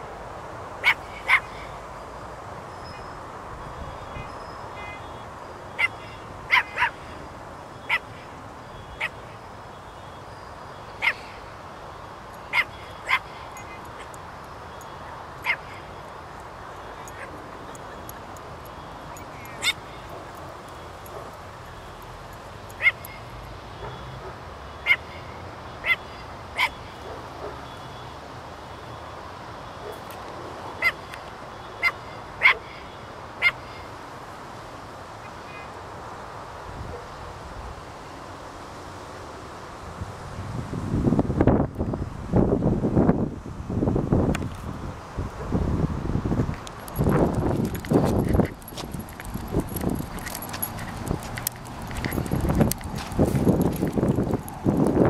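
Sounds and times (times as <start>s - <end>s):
small dog barking: 0.8s - 1.7s, 5.8s - 7.0s, 9.0s - 9.2s, 11.0s - 11.3s, 12.5s - 14.1s, 15.4s - 15.8s, 19.5s - 19.8s, 22.8s - 23.2s, 25.8s - 27.7s, 31.8s - 32.8s.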